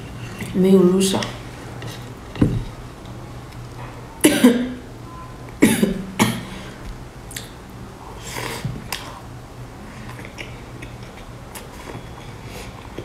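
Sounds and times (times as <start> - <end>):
woman coughing: 4.2 - 4.8, 5.6 - 6.5.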